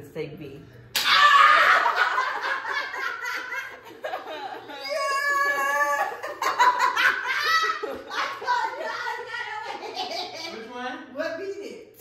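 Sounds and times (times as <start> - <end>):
loud yell: 1.0 - 2.1, 4.8 - 6.3, 7.2 - 9.7
people laughing and cheering: 1.0 - 10.6.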